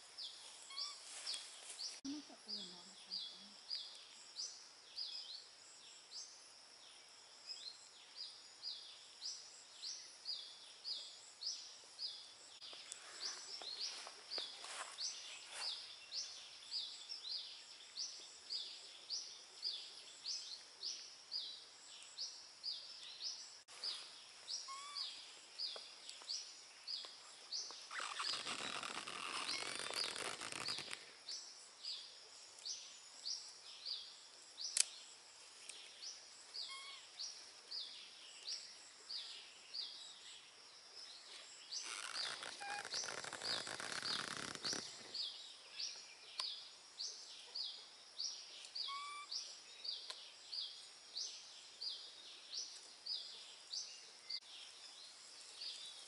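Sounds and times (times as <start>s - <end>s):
bird chirping: 0.0s - 56.0s
broad rustling noise: 0.3s - 2.1s, 13.0s - 15.9s, 27.8s - 31.1s, 41.2s - 45.2s.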